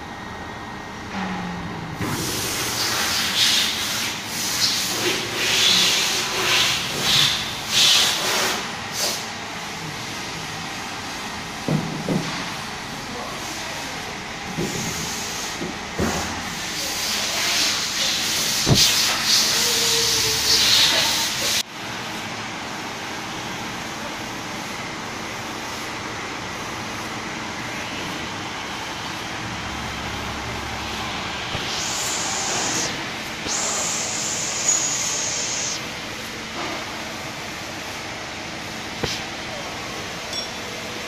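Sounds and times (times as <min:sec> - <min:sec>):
machinery hum: 0:00.0 - 0:41.0
loud hissing: 0:31.4 - 0:35.9.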